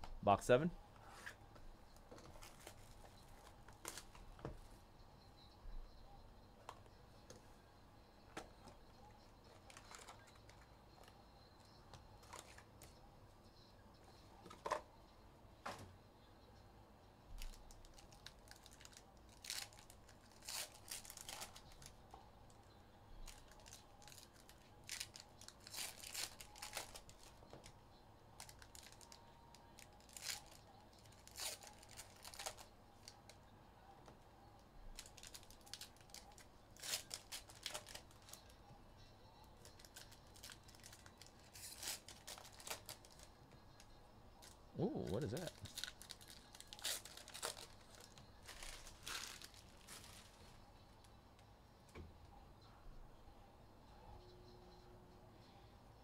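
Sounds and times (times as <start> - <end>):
plastic wrapping tearing and crinkling: 17.4 - 22.0, 23.2 - 27.7, 28.4 - 29.2, 29.8 - 33.3, 35.0 - 38.5, 39.6 - 43.3, 45.3 - 50.5.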